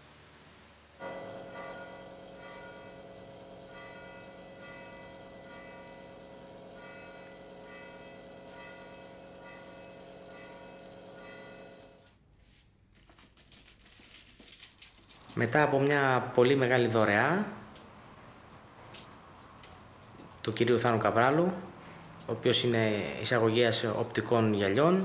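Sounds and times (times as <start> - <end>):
bell-like chime notes: 1.0 - 12.0
steady held drone: 1.0 - 12.0.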